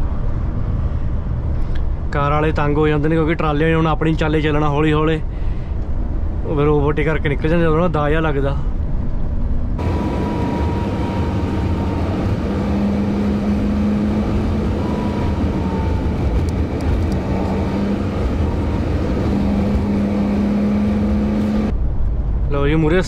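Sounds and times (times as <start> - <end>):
road rumble: 0.0 - 23.0
low hum: 8.8 - 22.5
lorry diesel engine drone: 9.7 - 22.3.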